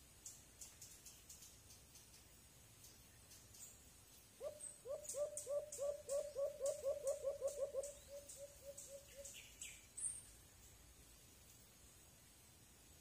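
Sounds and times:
dove hooting: 4.4 - 9.4.

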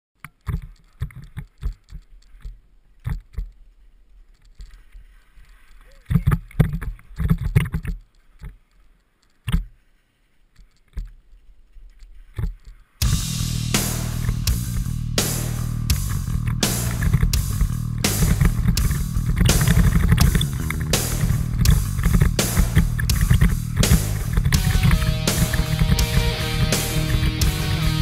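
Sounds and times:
mountain bike rattling and knocking: 18.4 - 21.0, 21.6 - 24.9.

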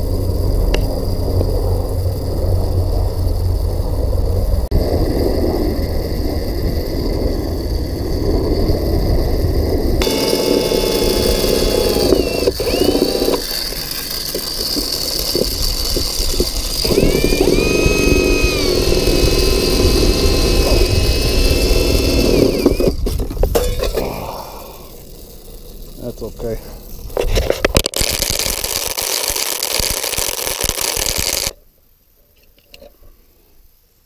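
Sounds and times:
low rumbling noise: 0.0 - 28.5
scattered clicks: 10.0 - 19.4, 27.3 - 31.6
cordless drill motor whining: 10.0 - 23.2, 27.8 - 31.6.

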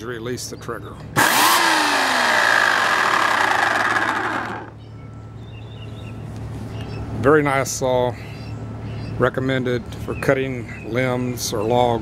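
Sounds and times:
electric chainsaw whirring down: 1.2 - 4.7.

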